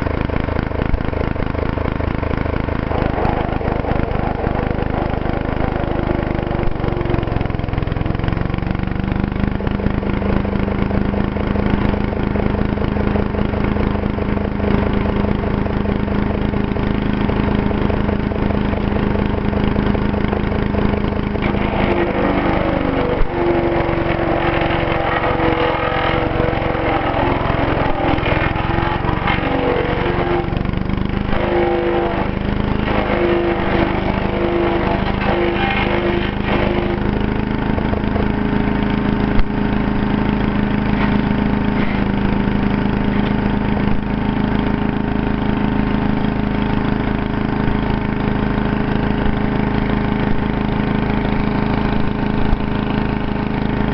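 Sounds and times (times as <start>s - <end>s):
chipper crackling through branches: 0.0s - 7.6s, 17.0s - 43.4s
engine running: 0.0s - 53.9s.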